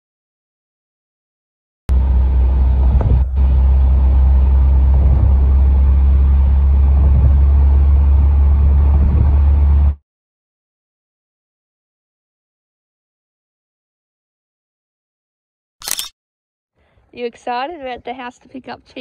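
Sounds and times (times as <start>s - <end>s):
car road and wind rumble: 1.9s - 10.0s.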